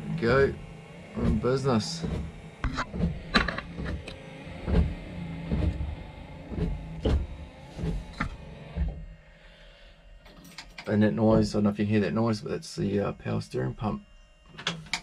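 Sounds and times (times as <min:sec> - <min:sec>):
wiper motor humming: 0:00.0 - 0:15.0
wiper arms knocking: 0:01.2 - 0:09.0.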